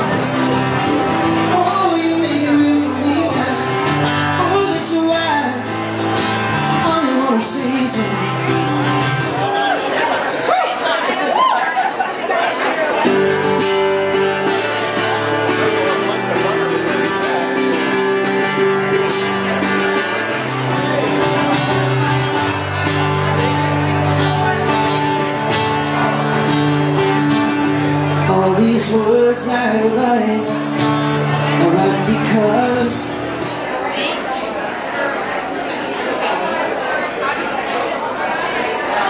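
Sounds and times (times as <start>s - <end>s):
man singing into a microphone: 0.0s - 9.4s, 27.7s - 33.4s
guitar playing: 0.0s - 10.2s, 12.7s - 34.4s.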